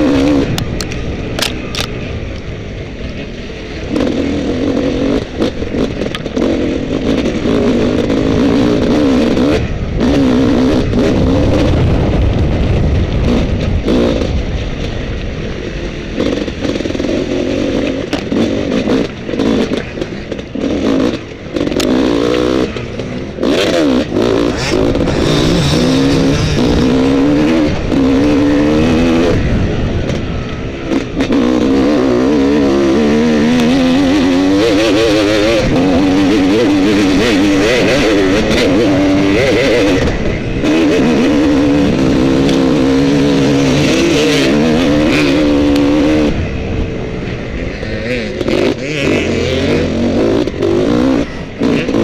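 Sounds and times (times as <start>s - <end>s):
dirt bike engine revving: 0.0s - 14.6s, 15.8s - 52.0s.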